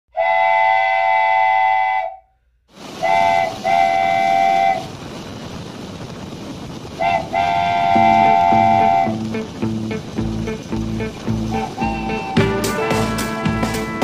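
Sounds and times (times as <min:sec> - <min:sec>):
train horn blasts: 0:00.1 - 0:02.3, 0:07.0 - 0:09.6, 0:10.4 - 0:14.0
train running along track: 0:00.2 - 0:02.2, 0:02.8 - 0:14.0.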